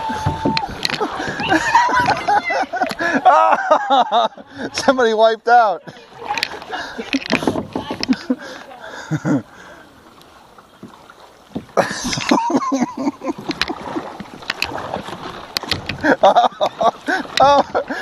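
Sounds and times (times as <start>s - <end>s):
water dripping: 0.0s - 4.9s
paddle splashing in water: 0.0s - 5.2s, 5.8s - 18.0s.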